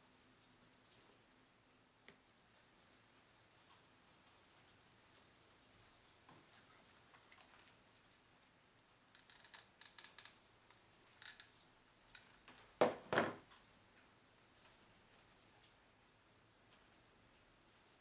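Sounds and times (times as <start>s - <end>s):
light clicks and rustles: 9.1s - 12.8s
glue gun knocking on wooden table: 12.8s - 13.4s.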